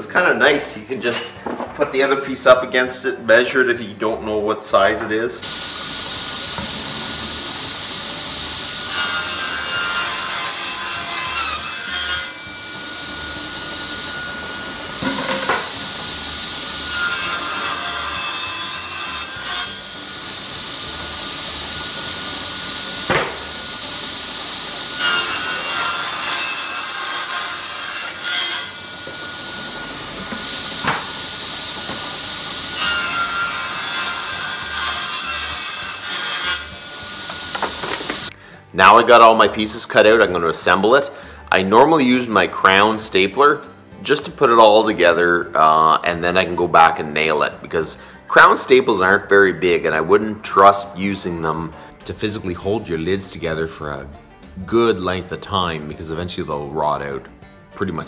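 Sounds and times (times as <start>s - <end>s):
table saw cutting wood: 4.8s - 43.5s
sharp knock: 23.1s - 23.4s.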